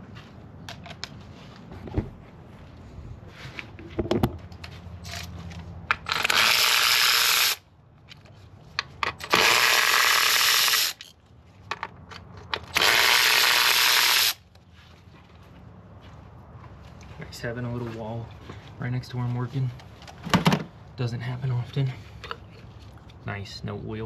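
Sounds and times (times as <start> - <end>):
tool handling clicks: 0.6 - 1.7.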